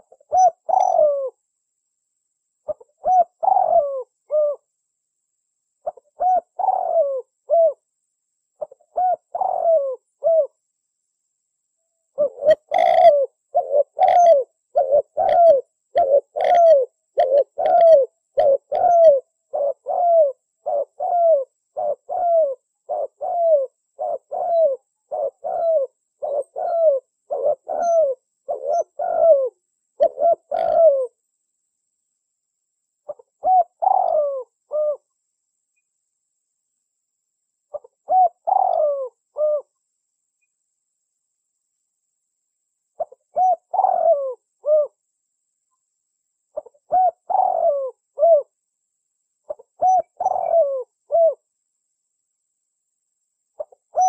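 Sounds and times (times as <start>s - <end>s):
dove cooing: 0.0s - 1.4s, 2.6s - 4.7s, 5.8s - 7.8s, 8.6s - 10.6s, 12.1s - 31.2s, 33.1s - 35.1s, 37.7s - 39.8s, 43.0s - 45.0s, 46.6s - 48.6s, 49.5s - 51.4s, 53.6s - 54.0s.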